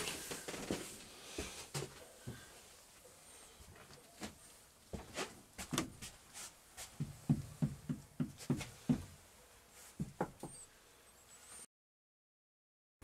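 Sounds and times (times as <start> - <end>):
wood knocks and thuds: 10.0 - 10.5.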